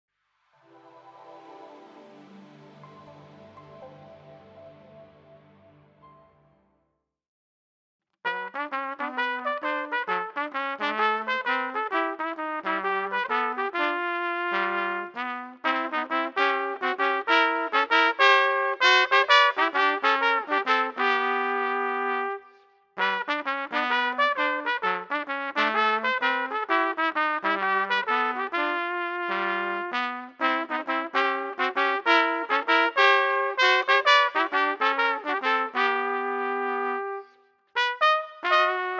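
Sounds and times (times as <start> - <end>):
trumpets playing swing jazz: 8.3 - 22.4, 23.0 - 38.9.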